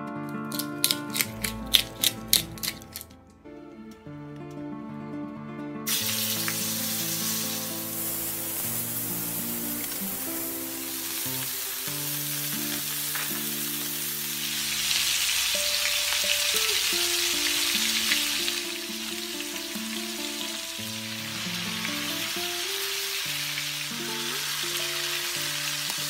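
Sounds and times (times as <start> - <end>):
soft background music: 0.0 - 26.0
steaks sizzling in a pan: 5.9 - 26.0.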